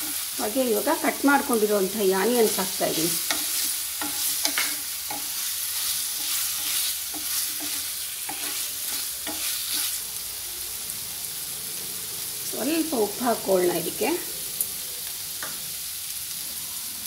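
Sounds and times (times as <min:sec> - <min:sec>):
onions sizzling in hot oil: 0:00.0 - 0:17.0
wooden spatula scraping a pan: 0:02.4 - 0:10.0.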